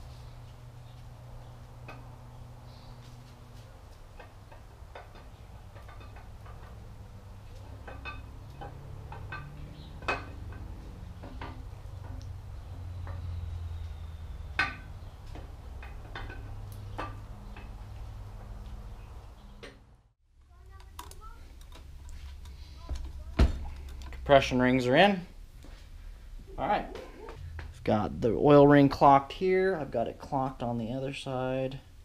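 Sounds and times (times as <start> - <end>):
low hum: 0.0 - 30.3
sharp metal knocks: 7.8 - 12.2, 14.4 - 17.8.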